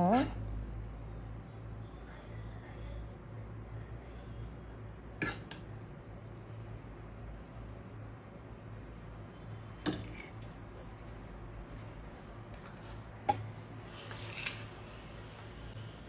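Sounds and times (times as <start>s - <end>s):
steady low hum: 0.0s - 16.0s
dishes clinking on stone counter: 5.2s - 5.7s.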